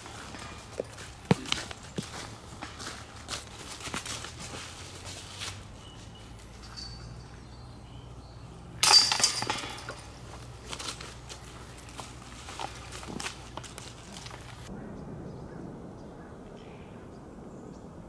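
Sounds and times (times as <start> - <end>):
disc hitting basket chains: 6.3 - 7.8, 8.8 - 14.7.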